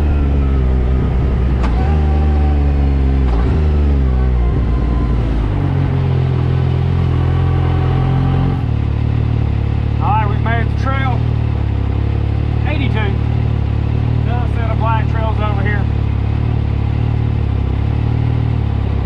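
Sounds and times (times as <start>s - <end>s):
engine pulling under load: 0.0s - 8.8s.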